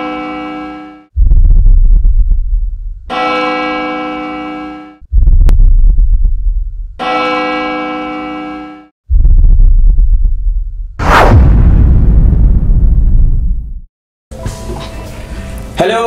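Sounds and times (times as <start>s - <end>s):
deep rumbling hits: 1.2s - 3.1s, 5.0s - 7.0s, 9.1s - 13.9s.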